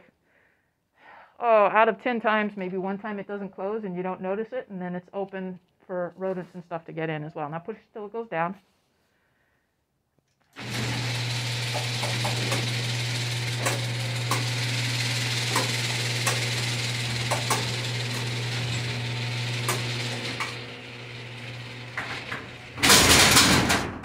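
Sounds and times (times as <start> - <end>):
garage door motor hum: 10.6 - 24.0
door clicks and rattles: 11.6 - 14.6, 15.4 - 24.0.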